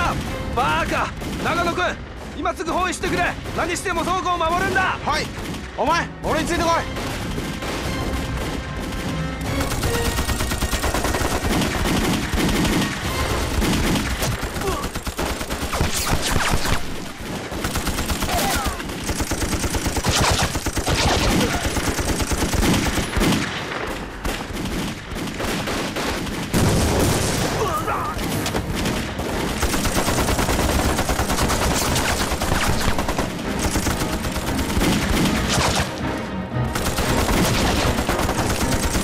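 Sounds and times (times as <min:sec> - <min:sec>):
rifle shots: 0:06.9 - 0:36.0, 0:36.8 - 0:39.0
machine-gun bursts: 0:09.6 - 0:17.0, 0:17.6 - 0:23.4, 0:29.6 - 0:35.5, 0:36.8 - 0:39.0.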